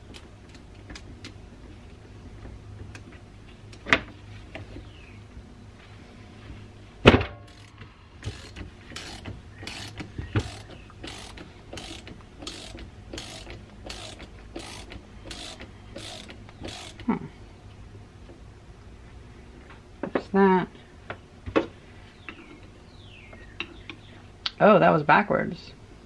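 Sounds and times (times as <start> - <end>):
ratchet wrench pawl clicking: 7.5 - 17.1.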